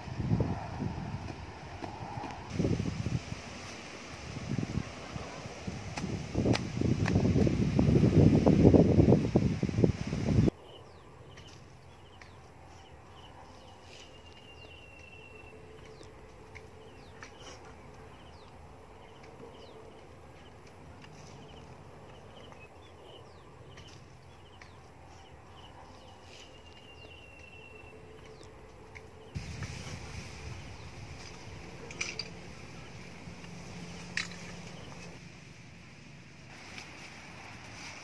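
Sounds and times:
small birds chirping: 10.4 - 29.4, 30.6 - 35.2.

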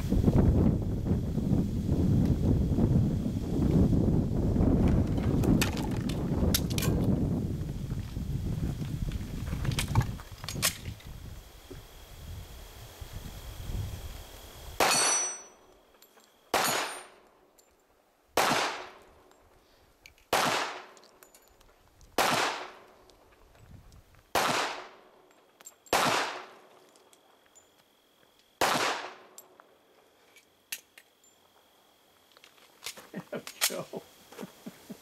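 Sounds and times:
steel plate ringing clang: 14.8 - 15.7, 16.5 - 17.2
handgun shots: 16.5 - 17.1, 18.4 - 18.9, 20.3 - 21.0, 22.2 - 22.8, 24.4 - 24.9, 25.9 - 26.5, 28.6 - 29.2.

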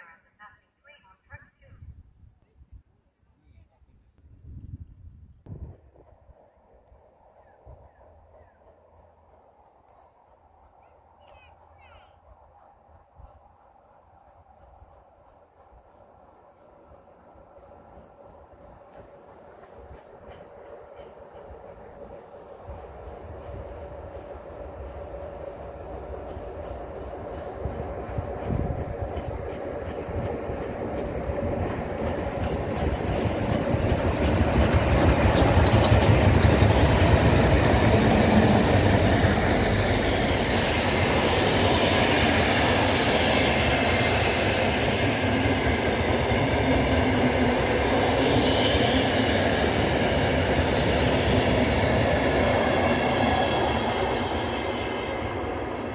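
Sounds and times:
steam locomotive passing: 4.2 - 55.9
train wheels rumbling and rattling: 13.3 - 55.9.

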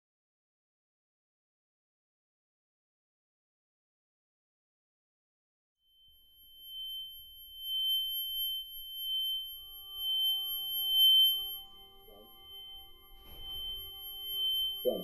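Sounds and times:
high-pitched ringing tone: 5.8 - 15.0
low held tones: 6.0 - 15.0.

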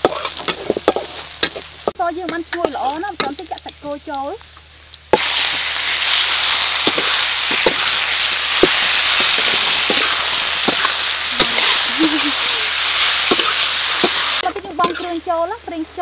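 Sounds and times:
meat sizzling in hot oil: 0.0 - 15.8
metal spatula scraping a wok: 5.2 - 15.2.

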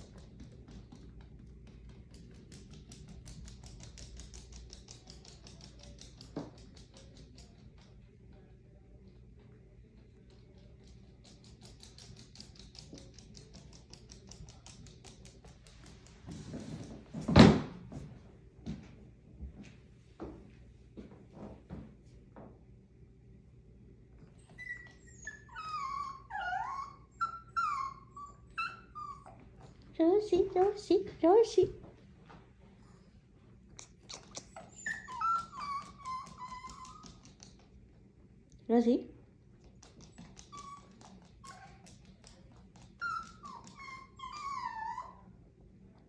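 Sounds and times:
dog whining: 24.4 - 29.5, 34.0 - 37.6, 40.0 - 42.1, 42.8 - 45.4.

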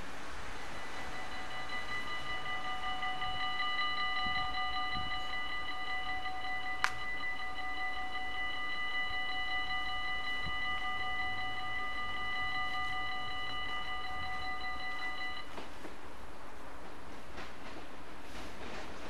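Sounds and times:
faint train rattle: 0.0 - 19.0
level crossing bell ringing: 0.6 - 15.5.

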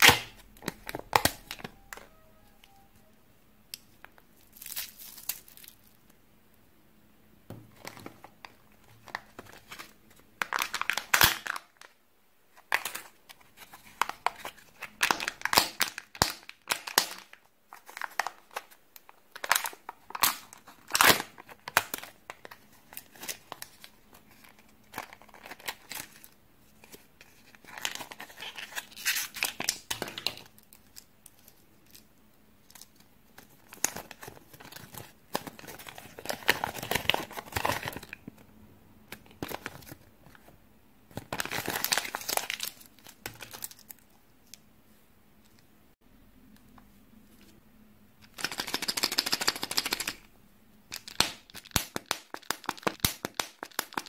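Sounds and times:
plastic wrappers crinkling and tearing: 0.0 - 1.8, 3.8 - 6.2, 7.8 - 12.0, 12.6 - 38.4, 39.1 - 40.5, 41.1 - 44.6, 50.9 - 54.0.

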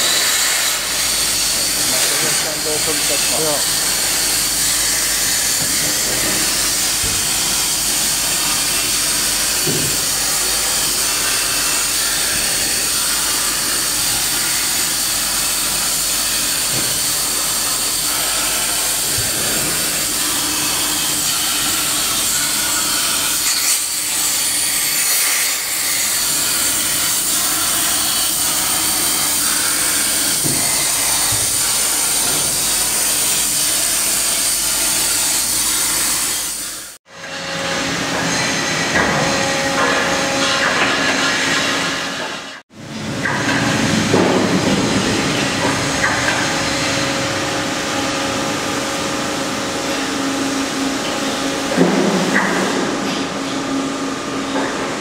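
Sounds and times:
plasma torch cutting steel: 0.0 - 37.0.

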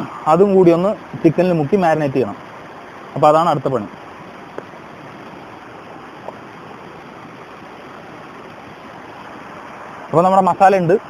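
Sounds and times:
stream flowing over rocks: 0.0 - 11.0.

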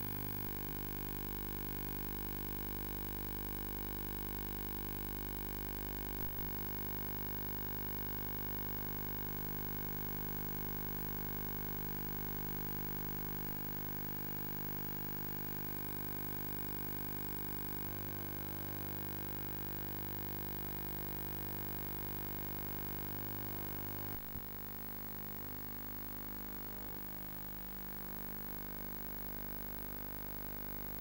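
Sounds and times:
electrical hum: 16.4 - 24.4.

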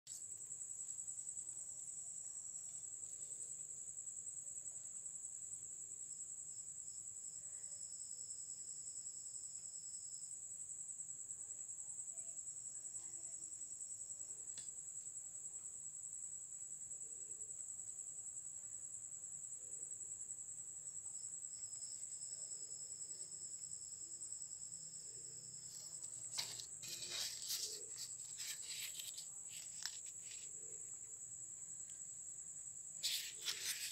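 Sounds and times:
high-pitched cricket trill: 0.1 - 33.9
lower cricket trill: 0.1 - 33.9
clicks and rustles: 25.7 - 30.5, 33.0 - 33.9.

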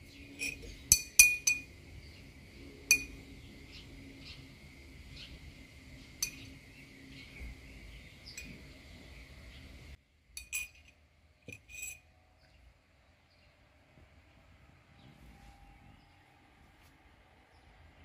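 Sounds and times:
spoon clinking on glass jars: 0.4 - 1.7, 2.9 - 3.2, 6.2 - 6.5, 10.4 - 12.0.

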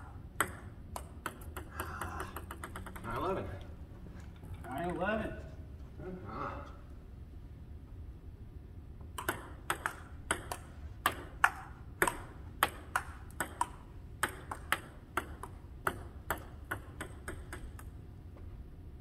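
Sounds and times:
ping-pong ball ticking: 0.4 - 3.2, 9.2 - 17.9.

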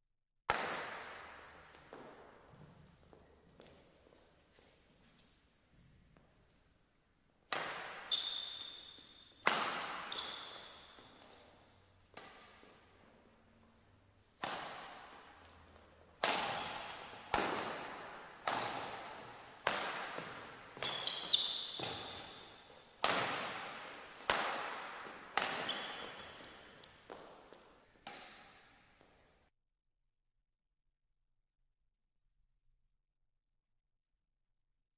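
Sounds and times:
racquets hitting shuttlecock: 0.5 - 2.7, 7.5 - 29.2
shoes squeaking on court: 0.5 - 5.3, 7.8 - 29.2.

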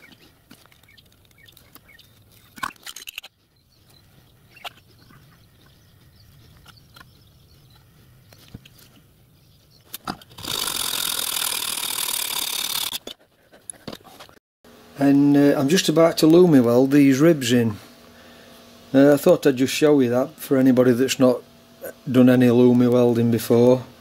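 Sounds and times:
metal and tools clicking: 0.0 - 3.4, 9.9 - 14.0.

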